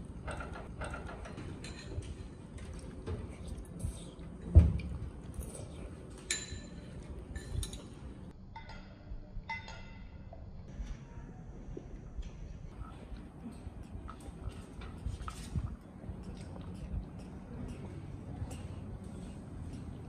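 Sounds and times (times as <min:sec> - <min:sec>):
glass and tableware clinking: 0:00.2 - 0:02.3, 0:06.1 - 0:10.2.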